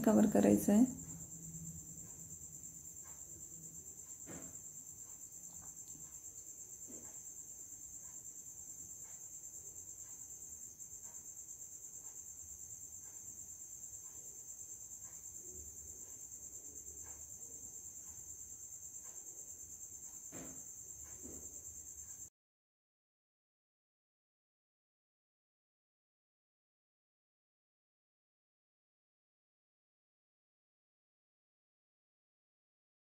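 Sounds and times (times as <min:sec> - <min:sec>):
cricket trilling: 0:00.0 - 0:22.3.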